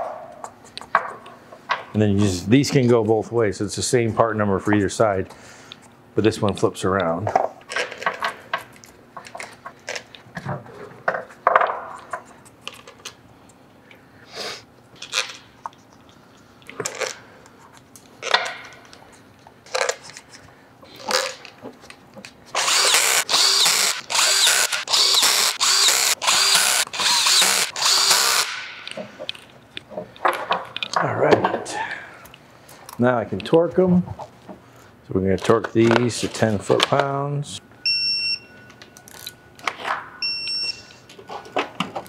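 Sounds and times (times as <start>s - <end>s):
cordless drill trigger bursts: 22.6s - 28.6s.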